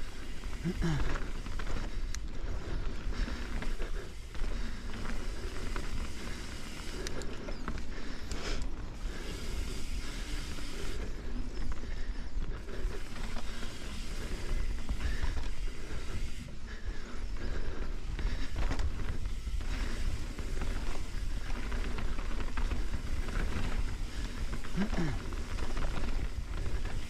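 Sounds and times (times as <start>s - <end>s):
bike rattles and clicks: 0.0s - 27.0s
tyre noise on dirt: 18.5s - 27.0s.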